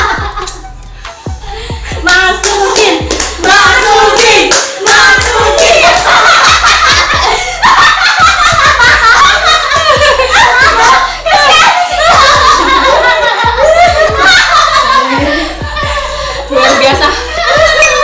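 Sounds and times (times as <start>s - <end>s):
background music with steady beat: 0.0s - 18.0s
people clapping: 2.1s - 10.7s
voices: 8.0s - 18.0s.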